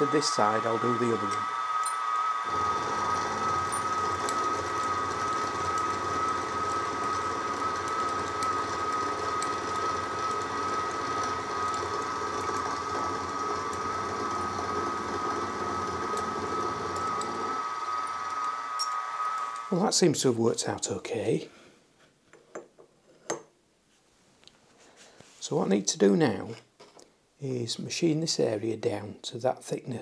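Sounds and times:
end mill cutting aluminium: 0.0s - 19.8s
mill motor whine: 0.0s - 19.9s.

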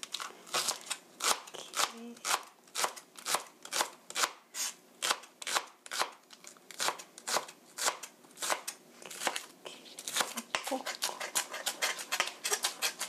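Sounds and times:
knife chopping onion on cutting board: 10.2s - 13.0s.

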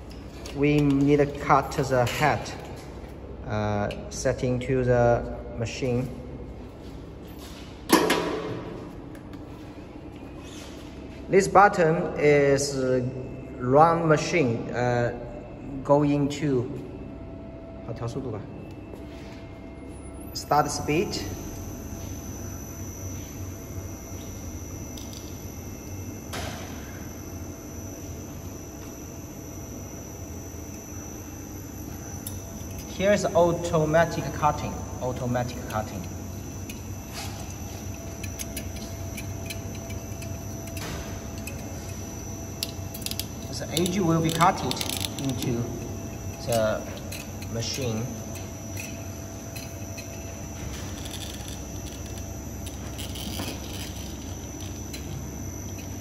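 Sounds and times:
welding machine roller drive humming: 21.0s - 56.0s.

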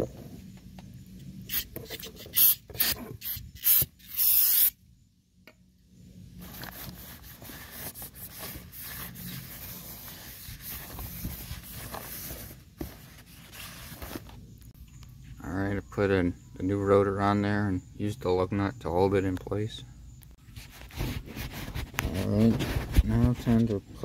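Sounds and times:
aerosol can spraying: 1.5s - 4.8s.

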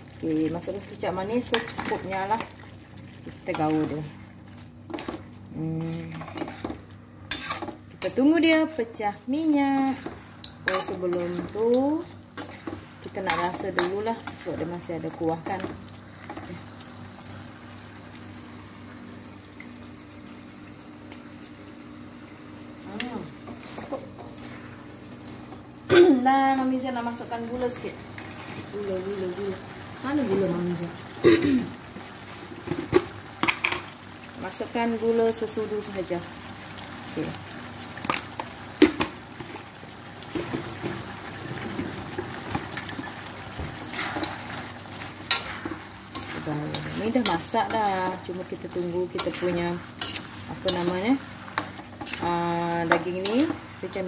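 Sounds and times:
sauce bubbling in a wok: 0.0s - 5.5s, 10.0s - 21.0s, 28.0s - 54.0s
spatula stirring in a pan: 0.9s - 8.2s, 9.6s - 16.6s, 42.6s - 54.0s
sauce bubbling and hissing: 2.1s - 5.6s, 15.8s - 21.0s, 35.8s - 47.2s.

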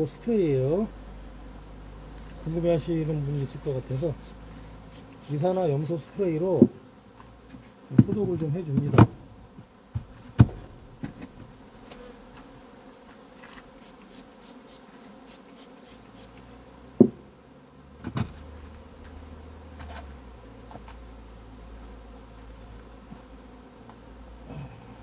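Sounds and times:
bees buzzing: 0.0s - 25.0s
sharp knocks: 10.0s - 11.5s, 17.0s - 17.2s.

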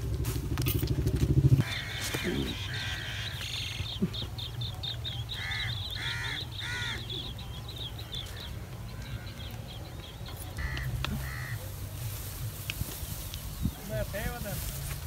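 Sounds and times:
crow cawing: 1.6s - 3.8s, 5.3s - 7.1s, 10.6s - 11.6s
small birds chirping: 1.6s - 15.0s.

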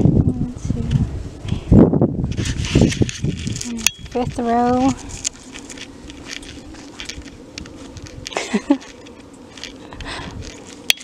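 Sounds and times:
faint clicks and rustles: 2.3s - 11.0s
footsteps on dry soil: 2.4s - 10.9s.

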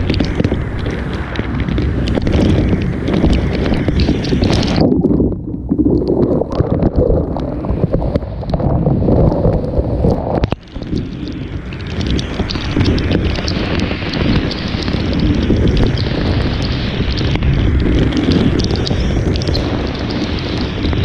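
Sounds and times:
drops ticking on camera: 0.0s - 4.9s, 10.4s - 21.0s
heavy rain: 0.0s - 21.0s
wind buffeting microphone: 0.0s - 21.0s.

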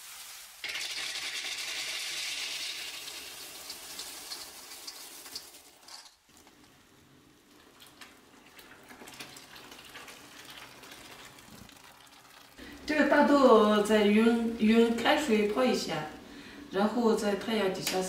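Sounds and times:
water hissing on hot beans: 0.0s - 13.4s
small crackles: 2.7s - 12.6s
faint water trickling: 6.3s - 17.4s.

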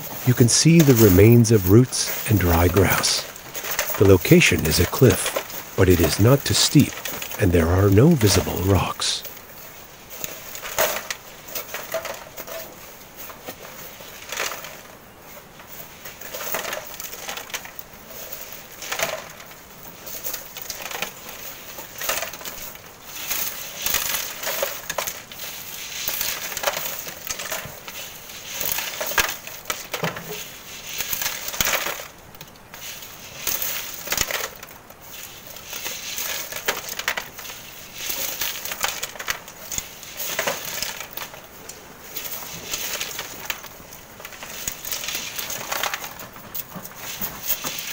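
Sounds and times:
shovels scraping sand: 0.0s - 9.2s
sand rattling through sieve: 0.0s - 47.9s.

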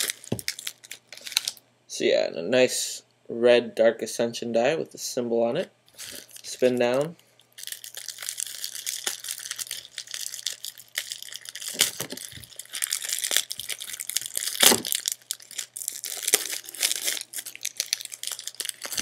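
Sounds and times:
plastic wrap crinkling and tearing: 0.0s - 1.6s, 5.9s - 19.0s.

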